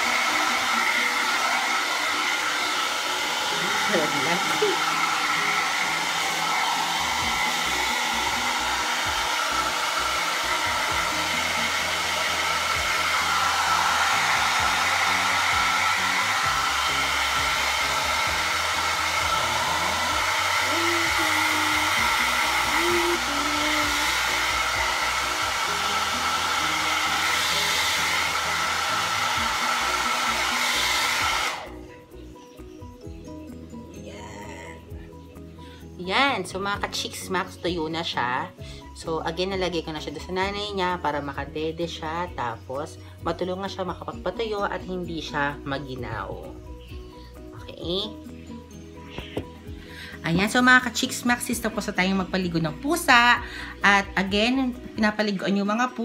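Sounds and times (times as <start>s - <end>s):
hair dryer running: 0.0s - 32.0s.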